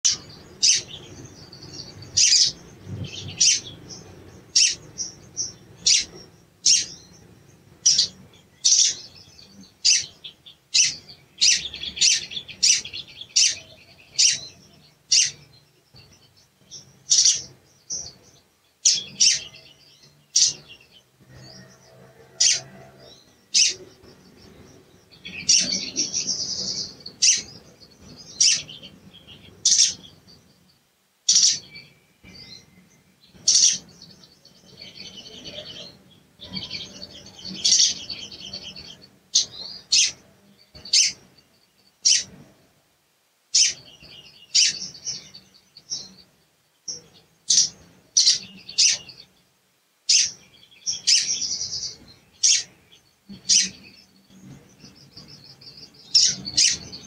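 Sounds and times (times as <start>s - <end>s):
bird giving sharp high chirps: 43.6s - 45.4s.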